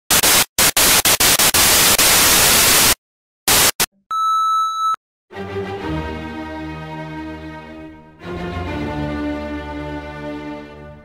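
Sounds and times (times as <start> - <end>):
steady beep: 4.1 - 5.0
slow string music: 5.3 - 11.0.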